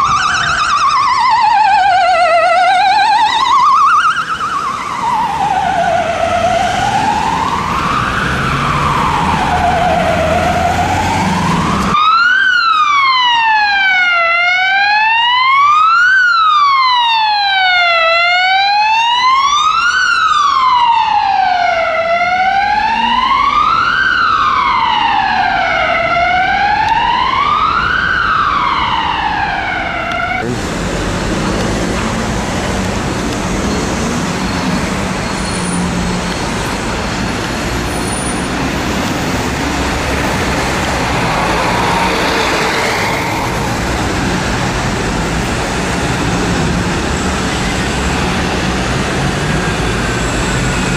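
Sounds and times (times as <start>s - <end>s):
buses rumbling: 0.0s - 12.3s, 16.4s - 50.9s
ambulance siren wailing: 0.0s - 50.9s
busy city traffic: 0.0s - 50.9s.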